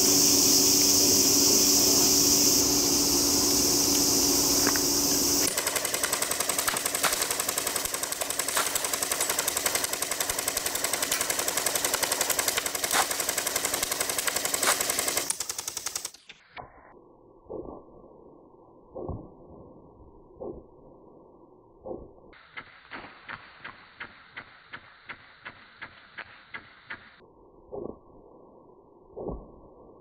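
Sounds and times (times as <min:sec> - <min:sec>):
high-pitched hiss: 0:00.0 - 0:16.4
airsoft rifle firing full auto: 0:05.1 - 0:16.4.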